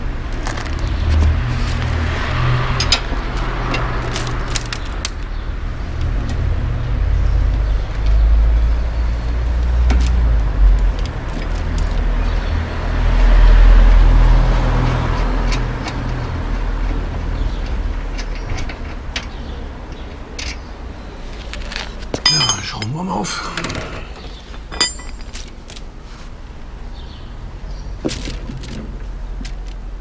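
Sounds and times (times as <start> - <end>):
low rumble of passing cars: 0.0 - 30.0
light clicks and taps on bike: 15.1 - 20.7.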